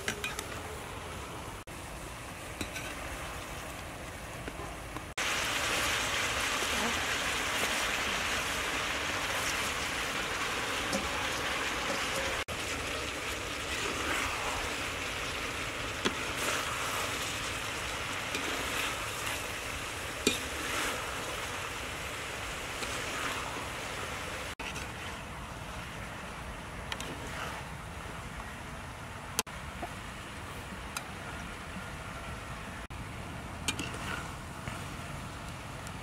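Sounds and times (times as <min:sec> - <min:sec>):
metal ladle scraping a pan: 0:02.6 - 0:03.1, 0:20.2 - 0:21.3, 0:33.7 - 0:34.3
food sizzling in a wok: 0:05.2 - 0:24.6.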